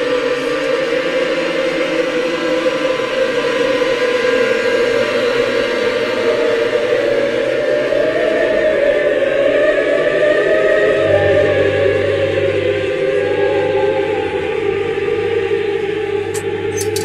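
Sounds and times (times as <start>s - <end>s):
choir singing sustained voices: 0.0s - 17.0s
low drone: 10.3s - 17.0s.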